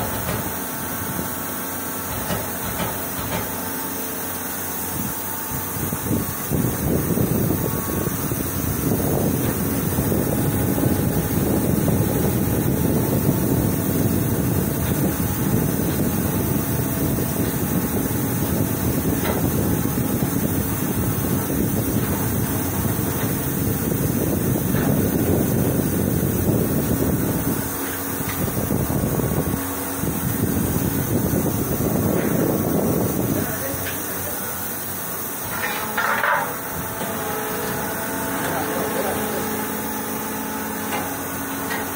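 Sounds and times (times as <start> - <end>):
heavy machinery rumbling: 5.4 - 41.9.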